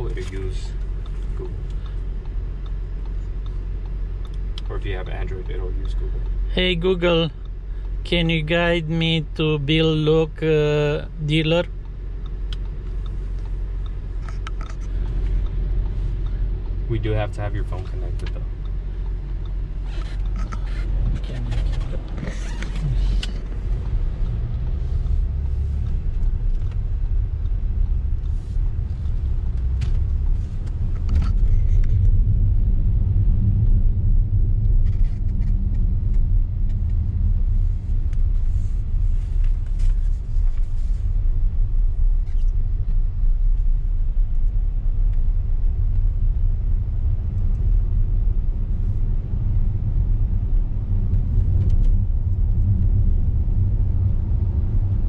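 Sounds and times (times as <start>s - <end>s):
car cabin road rumble: 0.0s - 55.0s
faint ticks and taps: 0.2s - 4.7s, 11.6s - 16.8s.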